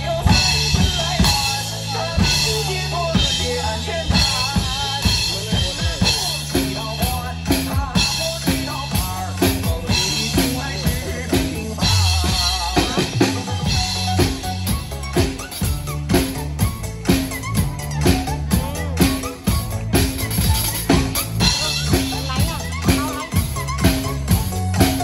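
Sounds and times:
drum kit beat: 0.0s - 25.0s
sustained bass notes: 0.0s - 25.0s.

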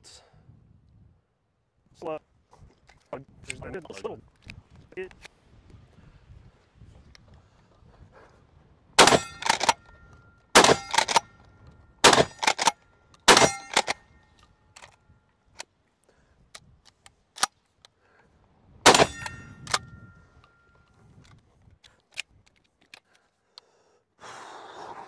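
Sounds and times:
shotgun shots: 9.0s - 9.8s, 10.6s - 11.3s, 12.0s - 14.0s, 18.8s - 19.9s
shotgun pump racking: 9.0s - 9.9s, 10.6s - 11.3s, 12.1s - 15.0s, 18.9s - 19.9s, 21.2s - 23.6s
shotgun action clicks: 9.0s - 15.0s, 18.9s - 20.6s.

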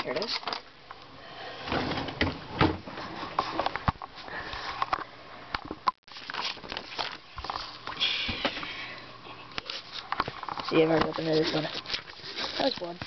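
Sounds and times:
paper crinkling and rustling: 6.1s - 7.9s, 9.6s - 13.0s.

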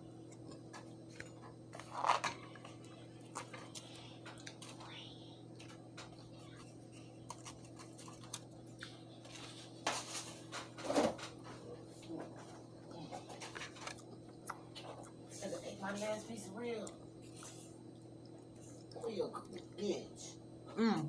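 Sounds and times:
low electrical hum: 0.0s - 21.0s
chewing: 5.5s - 9.5s, 13.3s - 15.3s, 16.8s - 19.7s.

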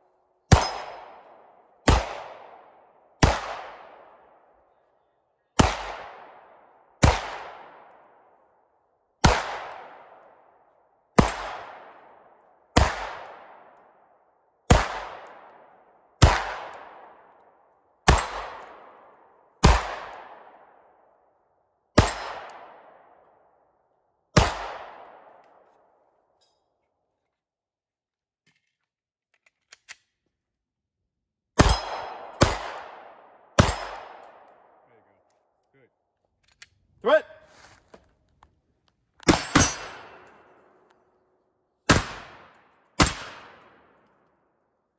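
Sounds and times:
pistol shots: 0.5s - 4.5s, 5.6s - 8.4s, 9.2s - 10.6s, 11.2s - 13.8s, 14.6s - 20.9s, 22.0s - 23.3s, 24.3s - 25.6s, 31.6s - 34.9s, 39.2s - 41.1s, 41.8s - 44.2s.

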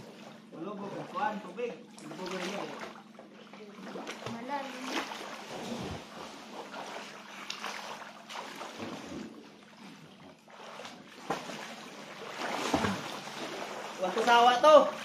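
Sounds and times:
seawater splashing and sloshing: 0.0s - 15.0s
swimmer diving splash: 3.8s - 9.4s, 10.5s - 15.0s.

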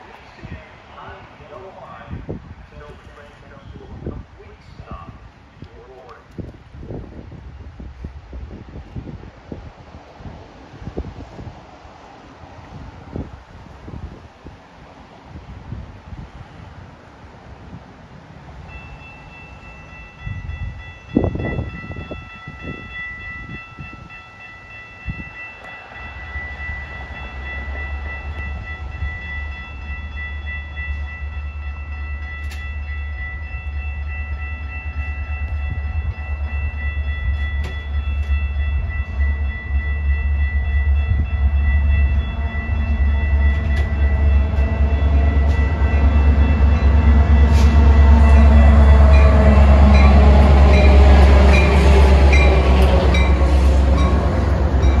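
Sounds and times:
diesel train engine and wheels rumbling: 0.0s - 55.0s
steady high tone: 18.7s - 55.0s.

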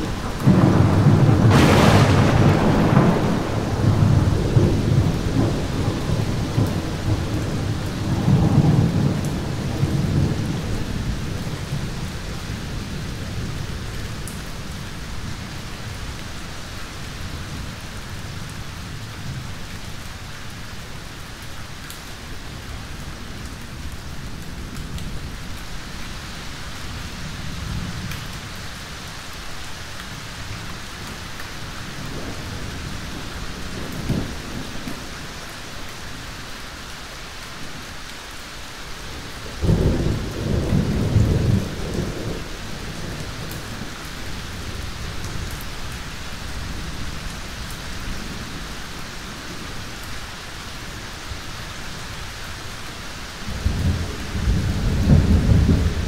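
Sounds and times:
thunder rumbling: 0.0s - 13.8s, 39.6s - 45.5s, 53.4s - 56.0s
steady rain: 0.0s - 56.0s.

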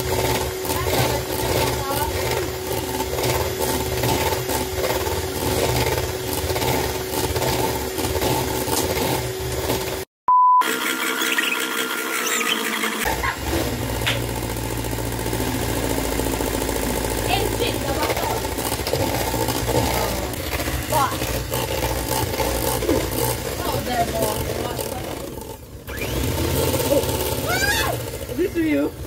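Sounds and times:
electric hand mixer running: 0.0s - 29.0s
short loud beep: 10.3s - 10.7s.

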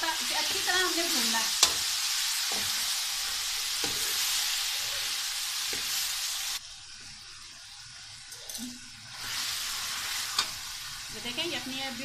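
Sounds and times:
food sizzling in a wok: 0.0s - 12.0s
steel spoon scraping a pan: 0.4s - 6.3s, 8.3s - 10.9s.

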